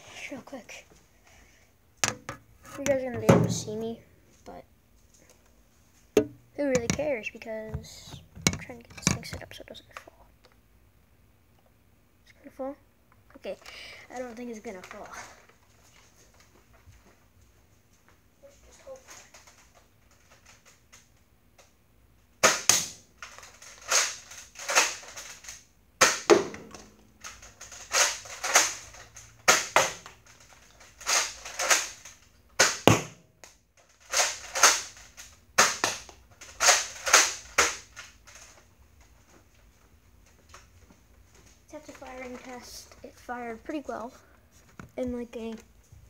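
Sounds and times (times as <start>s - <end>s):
toy dart blaster clacking: 6.2s - 7.1s, 22.4s - 23.0s, 26.0s - 30.1s, 31.0s - 33.2s, 35.6s - 38.0s.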